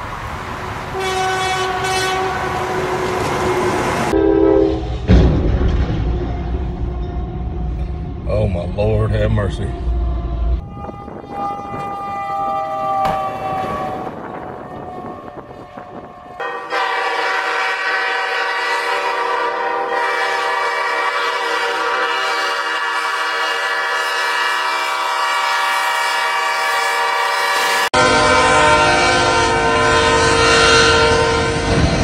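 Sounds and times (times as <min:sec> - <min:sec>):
locomotive air horn blast: 0:01.0 - 0:05.1, 0:09.5 - 0:32.0
second locomotive horn: 0:01.0 - 0:05.1, 0:09.4 - 0:32.0
low rumble: 0:04.8 - 0:11.9.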